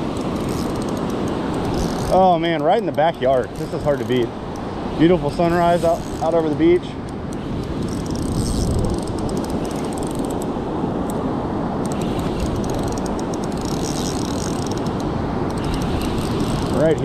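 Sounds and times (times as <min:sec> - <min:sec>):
wind: 0:00.0 - 0:17.0
fishing reel clicking: 0:00.2 - 0:02.2, 0:07.8 - 0:10.5, 0:11.9 - 0:17.0.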